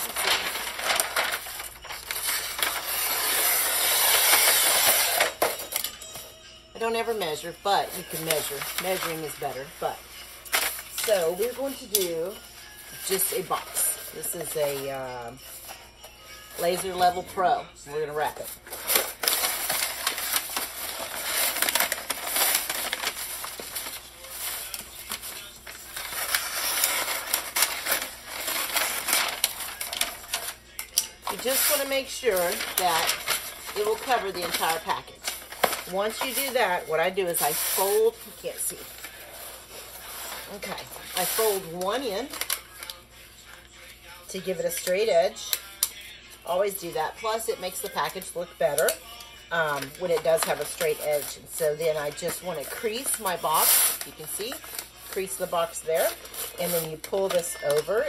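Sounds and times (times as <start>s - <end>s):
scissors cutting paper: 0.0s - 5.6s, 8.0s - 9.8s, 18.0s - 43.6s, 44.7s - 46.0s, 47.2s - 58.0s
wrapping paper rustling: 0.0s - 58.0s.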